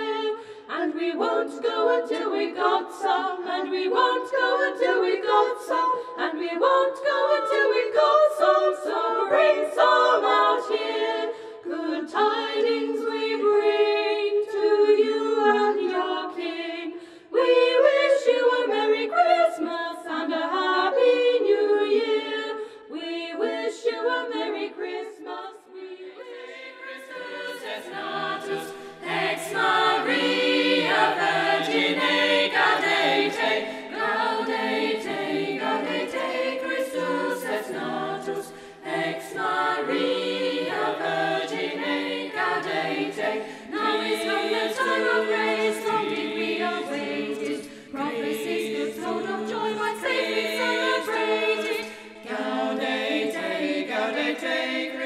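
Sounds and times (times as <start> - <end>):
unaccompanied choir singing carols: 0.0 - 55.0.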